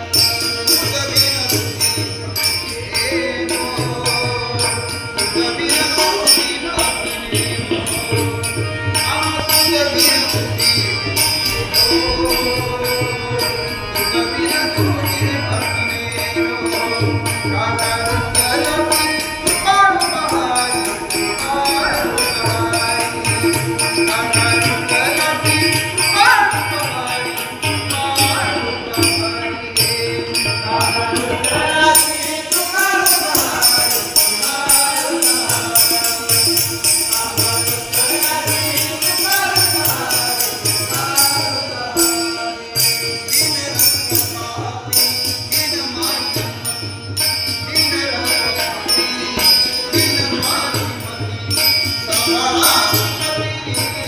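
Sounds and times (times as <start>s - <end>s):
group singing: 0.0s - 46.6s
harmonium: 0.0s - 54.0s
small hand cymbals: 0.0s - 54.0s
tabla drumming: 0.0s - 54.0s.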